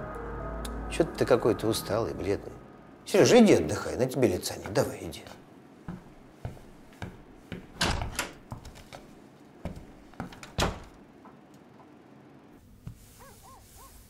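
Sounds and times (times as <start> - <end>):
door opening and closing: 7.6 - 9.0, 10.2 - 11.0.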